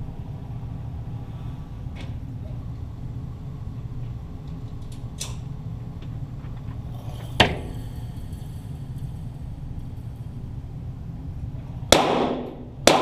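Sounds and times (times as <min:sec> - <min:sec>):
low rumble: 0:00.0 - 0:12.9
pistol shot: 0:11.9 - 0:13.0.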